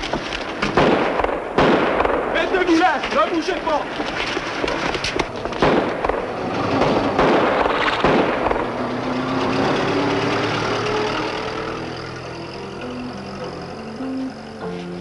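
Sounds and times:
explosive blasts: 0:00.0 - 0:09.9
background music with held notes: 0:09.8 - 0:15.0.

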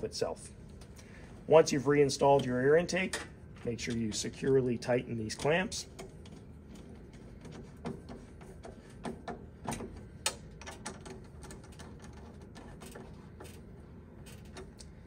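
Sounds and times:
hands clicking and tapping pipe clamp: 0:05.3 - 0:13.6.

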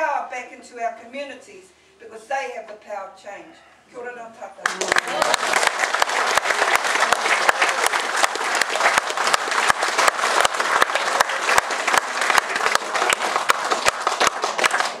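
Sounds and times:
audience applauding: 0:04.6 - 0:15.0
loud close hand claps: 0:04.6 - 0:15.0.

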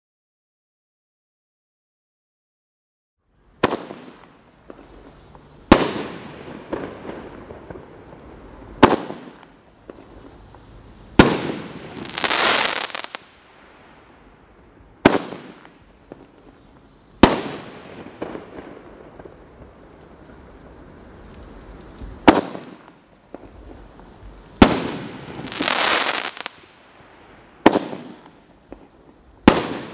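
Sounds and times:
dense crackling firework hiss: 0:03.2 - 0:29.9
loud firework bangs: 0:03.6 - 0:10.4, 0:11.1 - 0:14.0, 0:15.0 - 0:16.4, 0:17.2 - 0:19.8, 0:22.0 - 0:23.9, 0:24.5 - 0:26.8, 0:27.6 - 0:29.9
small firework pops: 0:03.6 - 0:13.4, 0:21.2 - 0:26.7, 0:27.6 - 0:29.9.

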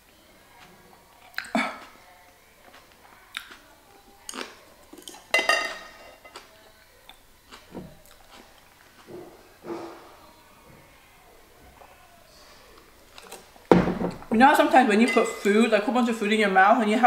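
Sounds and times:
utensil clinking against dish: 0:04.3 - 0:06.4.

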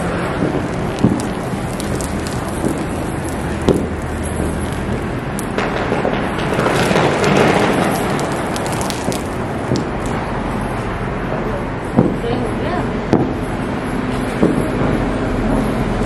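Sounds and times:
water splashing onto floor: 0:00.0 - 0:05.6, 0:06.5 - 0:10.3
wind rumbling on microphone: 0:00.0 - 0:16.0.

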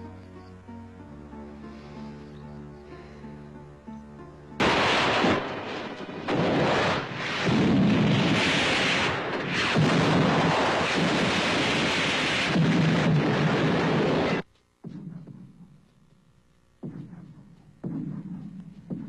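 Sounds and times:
explosions and rumbling debris: 0:04.6 - 0:14.4.

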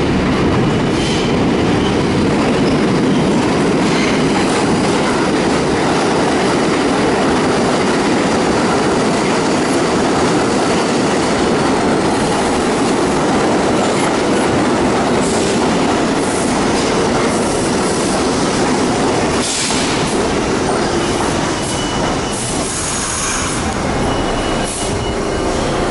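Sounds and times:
steel wheels rumbling on rail: 0:00.0 - 0:25.9
train clatter over track: 0:00.0 - 0:25.9
high thin squeal: 0:21.6 - 0:25.9.

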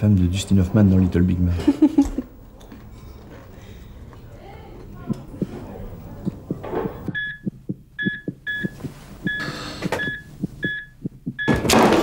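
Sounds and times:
fast thudding heartbeat: 0:06.3 - 0:11.6
patient monitor beeps: 0:06.8 - 0:11.7.

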